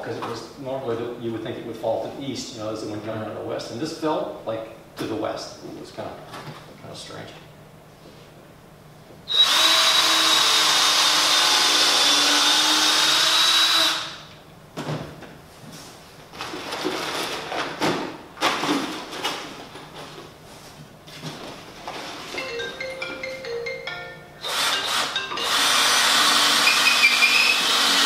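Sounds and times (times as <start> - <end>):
power drill running: 9.3 - 14.3, 24.4 - 28.0.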